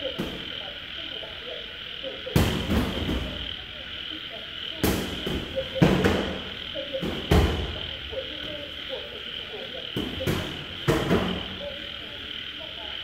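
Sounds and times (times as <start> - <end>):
frogs croaking: 0.0 - 13.0
high insect trill: 0.0 - 13.0.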